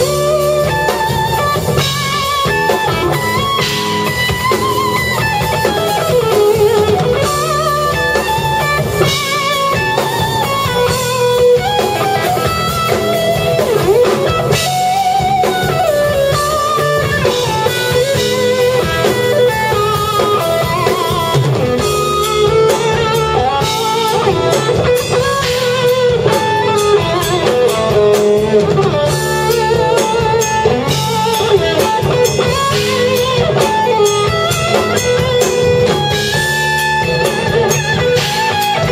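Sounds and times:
drum kit: 0.0 - 38.9
electric bass: 0.0 - 38.9
electric guitar lead: 0.0 - 38.9.

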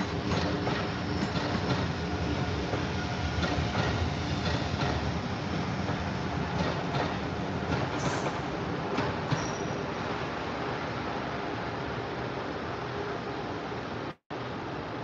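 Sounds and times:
wheels clacking over rail joints: 0.0 - 9.8
train wheels rumbling on rails: 0.0 - 11.9.

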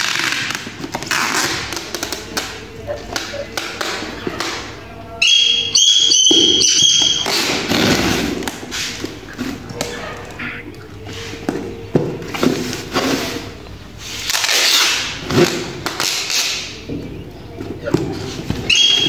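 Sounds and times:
shrill squeal: 5.1 - 8.1, 18.6 - 19.0.

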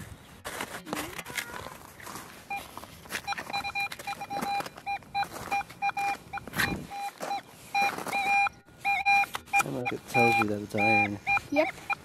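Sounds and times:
metal detector beeps: 2.4 - 12.0.

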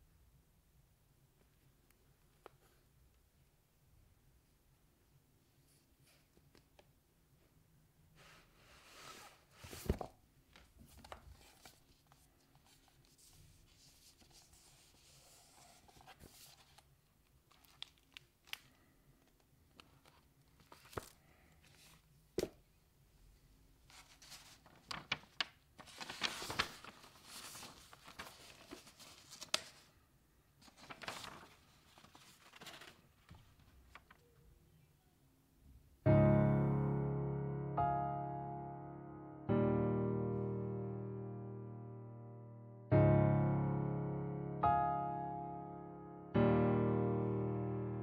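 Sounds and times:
sketchbook pages turning: 8.8 - 22.6, 23.9 - 30.0, 30.6 - 34.4
paper swishing: 11.0 - 16.8, 23.9 - 29.9, 30.6 - 34.2.

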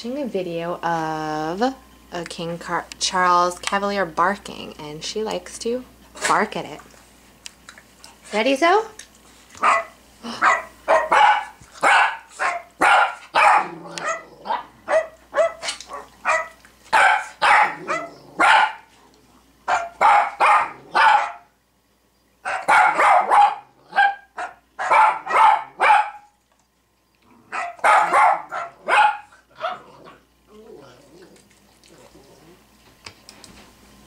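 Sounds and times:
dog barking: 9.6 - 18.9, 19.7 - 21.5, 22.4 - 26.3, 27.5 - 29.9.

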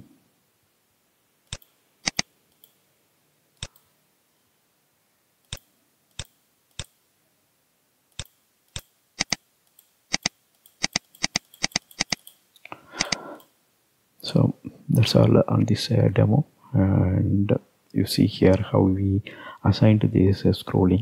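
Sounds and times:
computer mouse clicks: 1.5 - 2.8, 8.2 - 12.4, 13.0 - 13.5.

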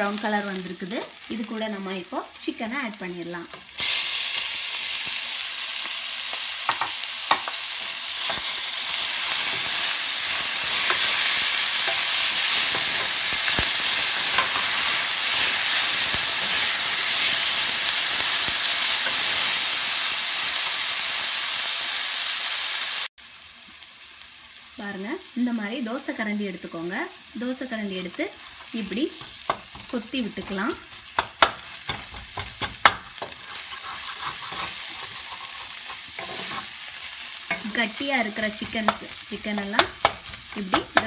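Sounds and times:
chicken sizzling in a pan: 0.0 - 41.0
spoon scraping and knocking pan: 6.3 - 7.6, 9.3 - 18.3, 28.4 - 36.8, 37.4 - 41.0.

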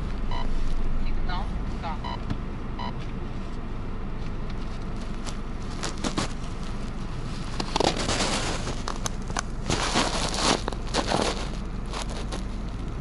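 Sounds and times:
tyre and engine rumble: 0.0 - 13.0.

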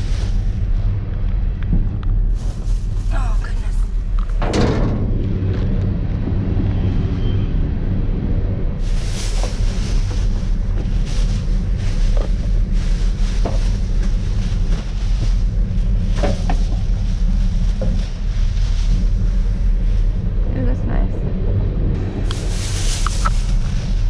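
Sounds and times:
plastic bags rustling: 0.0 - 1.0, 2.2 - 4.2, 8.8 - 20.3, 22.4 - 24.0
steady low rumble: 0.0 - 24.0.

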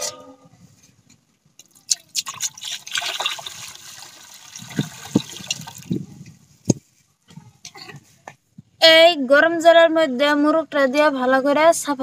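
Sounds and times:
water pouring into metal basin: 1.8 - 6.0.

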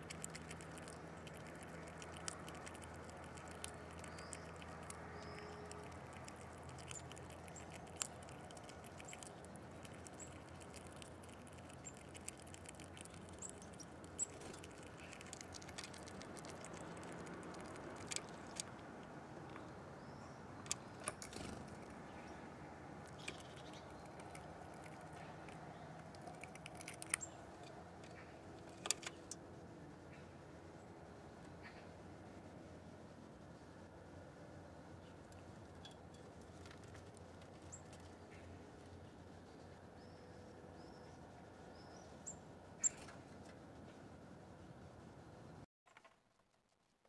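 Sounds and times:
small animals tapping and pecking: 0.0 - 19.8, 20.6 - 22.1, 23.0 - 29.4, 35.3 - 38.5
faint bird chirps: 3.4 - 10.8, 37.6 - 43.2.

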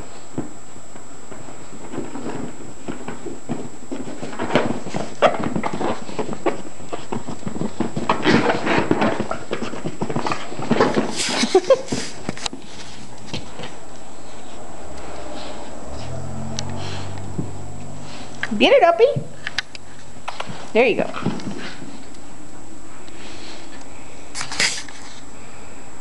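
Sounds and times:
dogs scuffling on floor: 1.3 - 14.6.

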